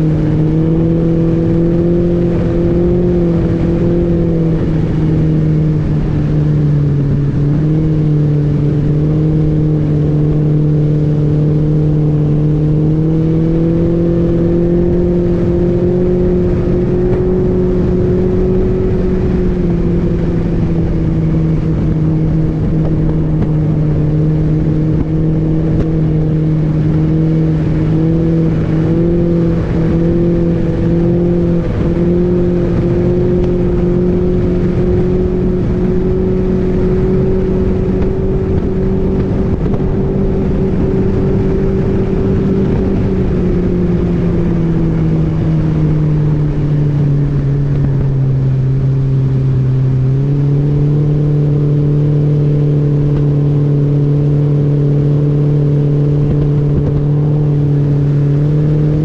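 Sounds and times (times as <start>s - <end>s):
outboard motor running: 0.0s - 59.0s.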